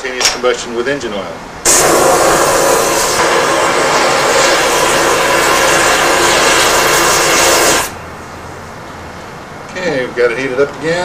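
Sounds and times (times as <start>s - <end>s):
gas torch hissing: 1.6s - 8.0s.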